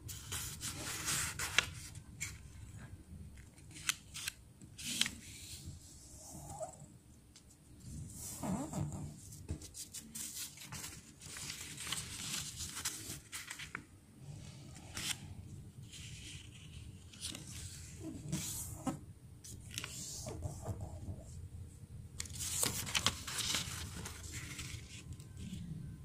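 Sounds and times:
paper rustling and crinkling: 0.1s - 2.6s, 9.3s - 13.9s, 22.2s - 25.6s.

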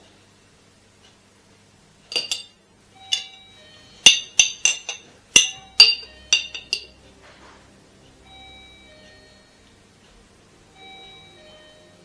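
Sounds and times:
utensil clinking against glass: 2.1s - 3.4s, 4.0s - 7.0s.

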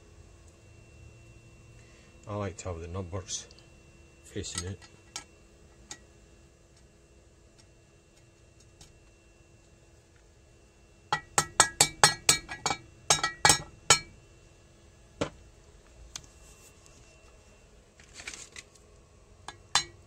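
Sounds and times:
metal tapping clinks: 11.1s - 14.1s.

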